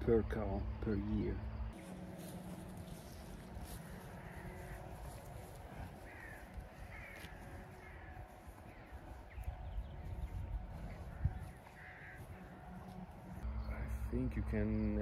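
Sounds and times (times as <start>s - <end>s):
birds cawing: 1.2s - 14.2s
wind rumble on microphone: 2.5s - 14.5s.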